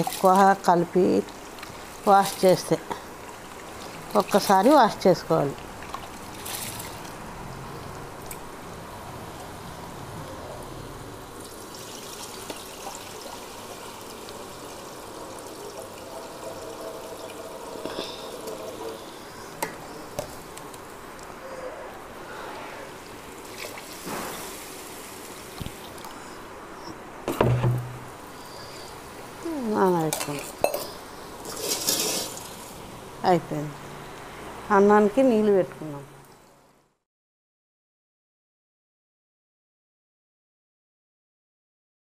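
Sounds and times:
water sloshing over rice: 5.7 - 7.2.

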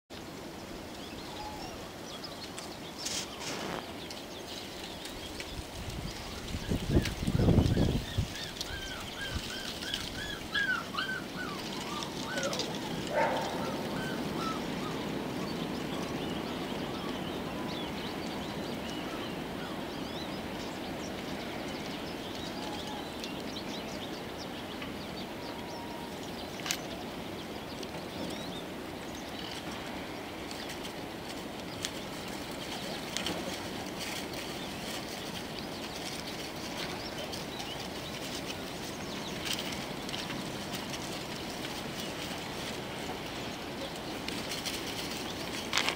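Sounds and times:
outdoor background noise: 0.1 - 45.9.

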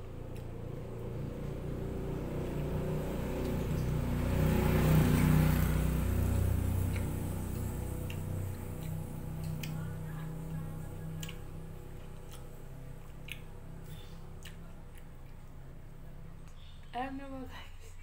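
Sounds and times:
vehicle engine passing by: 0.0 - 17.6.

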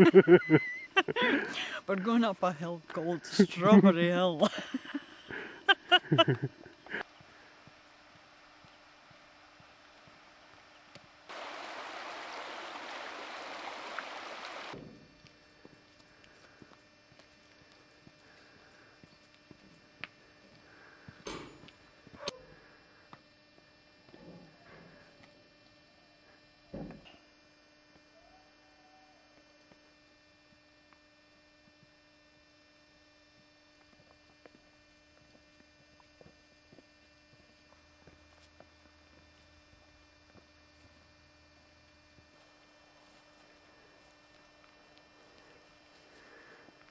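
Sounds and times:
faint electrical hum: 0.0 - 46.9
stream water rushing: 11.3 - 14.8.

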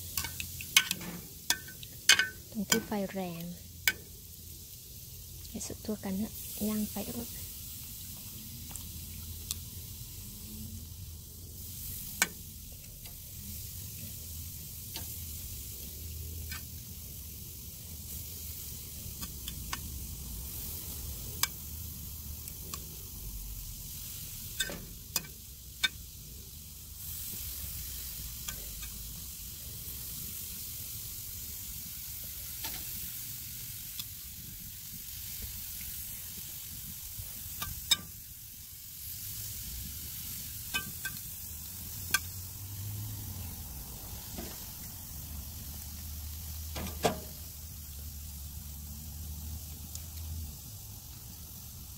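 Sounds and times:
meat sizzling on a grill: 0.0 - 51.9
pops and crackles from grill: 0.0 - 51.9.

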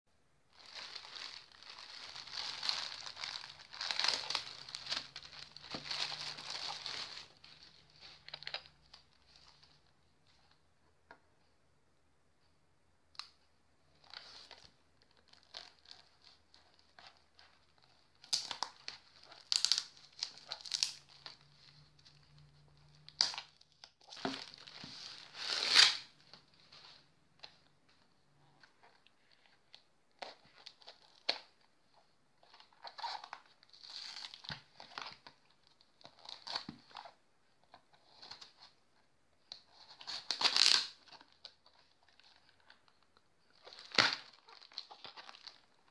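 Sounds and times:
plastic crinkling: 0.5 - 9.7, 14.0 - 28.0, 39.6 - 45.9
packing tape tearing: 24.2 - 26.1, 40.1 - 41.1.

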